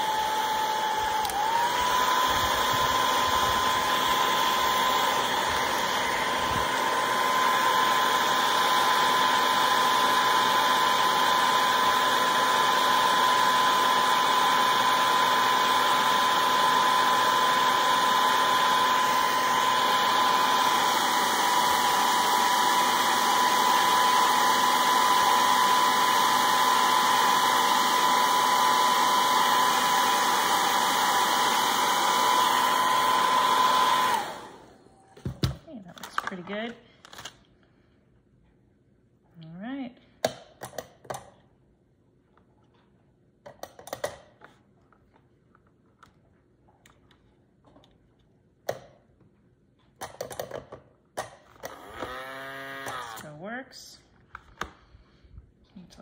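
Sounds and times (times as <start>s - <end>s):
hair dryer running: 0.0s - 35.6s, 51.6s - 53.6s.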